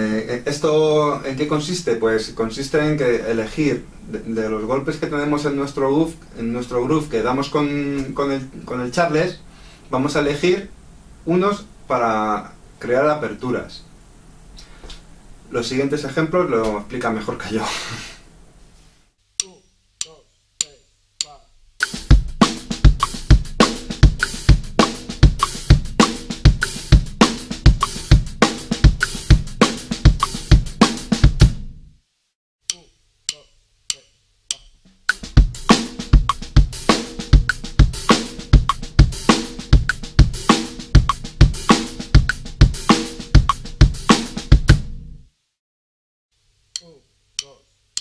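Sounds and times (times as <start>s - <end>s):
count-in clicks: 19.4s - 21.4s, 32.7s - 34.8s, 46.8s - 48.0s
drum kit grooves: 19.4s - 32.0s, 32.7s - 45.2s.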